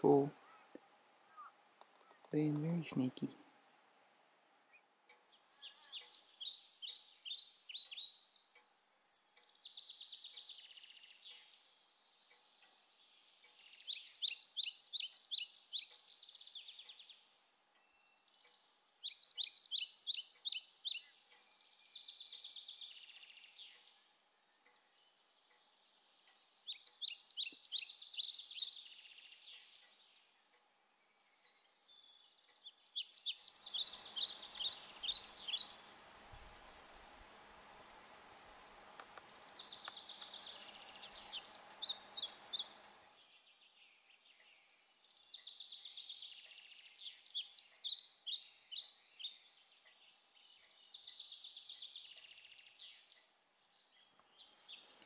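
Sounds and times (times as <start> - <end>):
faint steady hum: 33.6 - 43.2
soft buzzing trill: 33.7 - 43.2.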